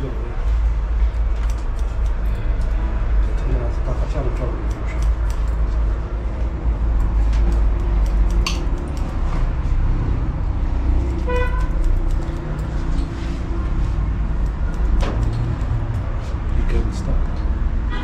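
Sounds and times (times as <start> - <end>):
street traffic rumbling: 0.0 - 18.0
scissors snipping hair: 1.0 - 9.5, 10.8 - 16.4
car horn toot: 11.3 - 11.8.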